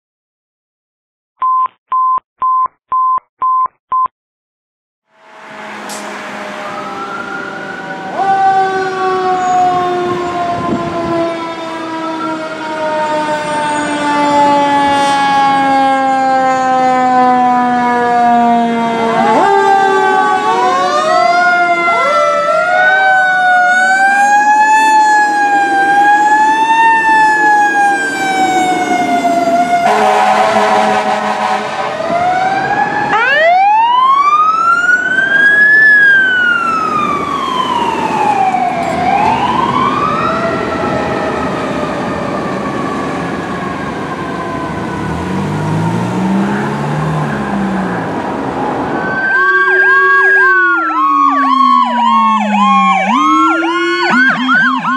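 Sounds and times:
air horn blast: 5.1s - 8.2s, 29.8s - 32.1s
electronic sirens wailing: 5.1s - 54.9s.

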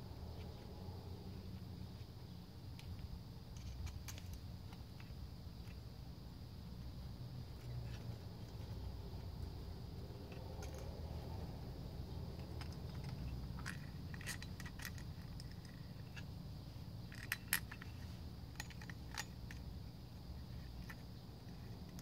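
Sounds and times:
low steady rumble: 0.0s - 22.0s
allen key clicking on screws: 12.4s - 16.2s, 17.1s - 19.7s.

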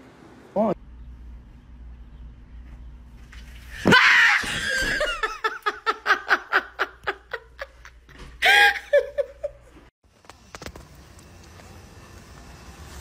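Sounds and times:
person laughing loudly: 4.4s - 9.8s.

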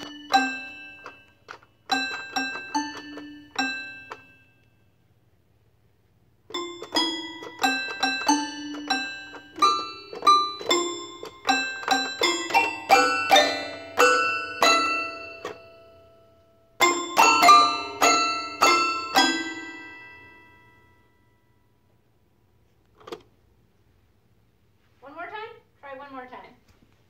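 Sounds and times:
toy piano notes: 0.0s - 4.7s, 6.5s - 20.9s.

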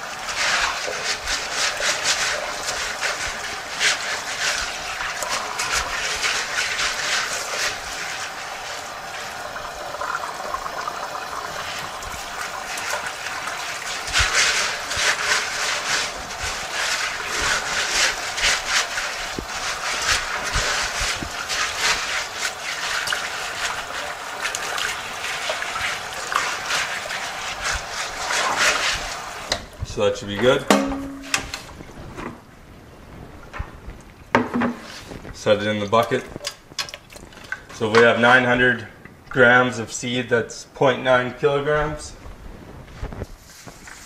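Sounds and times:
hands rubbing wet seeds: 0.0s - 10.1s, 11.0s - 29.5s
hose water splashing in sink: 0.0s - 32.0s, 33.5s - 40.2s, 43.1s - 44.0s.

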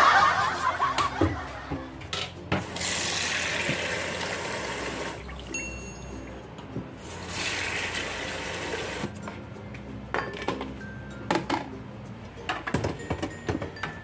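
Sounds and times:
background music: 0.0s - 14.0s
tap water running into pot: 2.6s - 5.2s, 7.1s - 9.1s.

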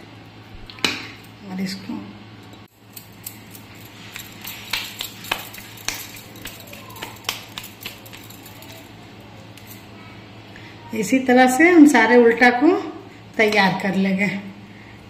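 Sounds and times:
low steady hum: 0.0s - 15.0s
light clicks and clinks on steel plates: 2.4s - 9.9s.

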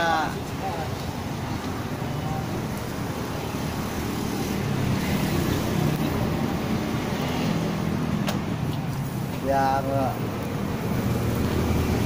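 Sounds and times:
road traffic rumble: 0.0s - 12.0s
vehicle engine passing: 3.5s - 12.0s.

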